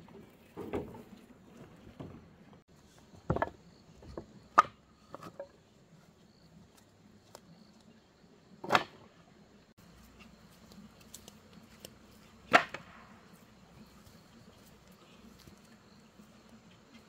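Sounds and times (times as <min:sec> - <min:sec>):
wooden planks knocking and clattering: 0:00.0 - 0:02.6, 0:03.2 - 0:05.6.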